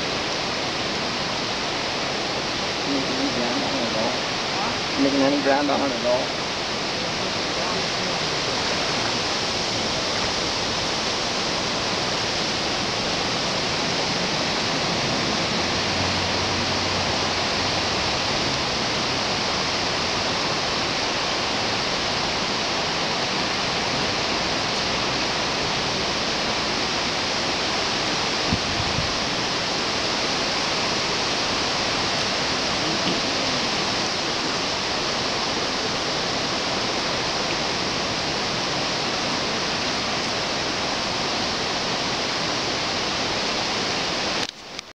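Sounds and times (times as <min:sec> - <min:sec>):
creek water rushing: 0:00.0 - 0:44.9.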